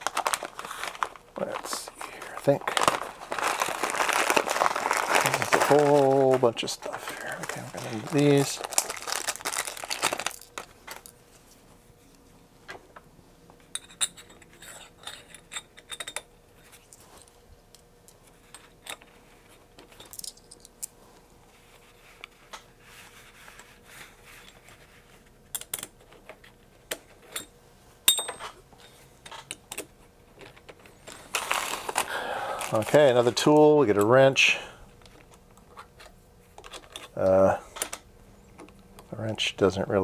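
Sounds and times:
small metal hardware clinking: 0:28.1 - 0:28.6.

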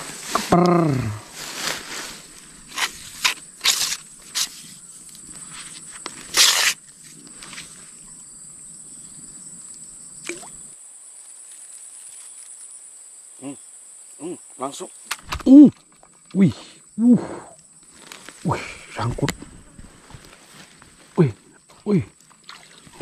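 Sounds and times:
crickets trilling: 0:00.0 - 0:23.0
rustling: 0:01.2 - 0:08.0, 0:17.8 - 0:18.5, 0:19.1 - 0:21.2.

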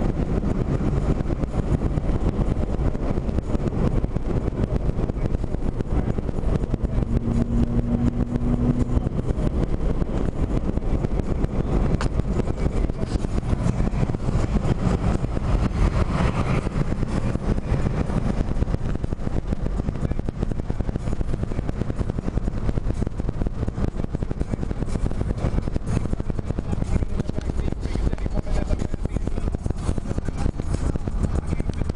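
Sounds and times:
car engine and road noise: 0:00.0 - 0:31.9.

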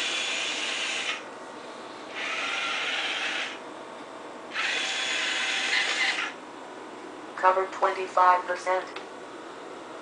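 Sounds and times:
robot wheel motors whirring: 0:00.0 - 0:01.2, 0:02.1 - 0:03.6, 0:04.5 - 0:06.4.

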